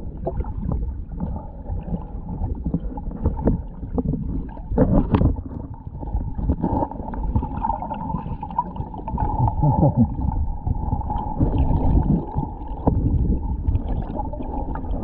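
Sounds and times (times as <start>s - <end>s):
muffled underwater rumble: 0.0s - 15.0s
water knocking and gurgling: 0.0s - 15.0s.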